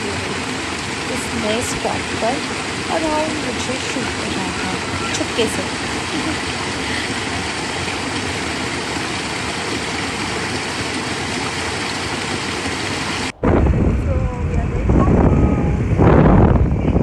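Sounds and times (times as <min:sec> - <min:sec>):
stream rushing over stones: 0:00.0 - 0:13.5.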